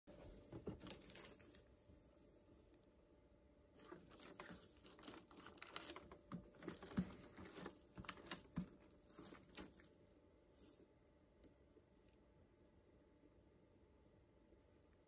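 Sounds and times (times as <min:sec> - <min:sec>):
plastic wrap crinkling: 0:00.6 - 0:01.7, 0:03.8 - 0:09.9.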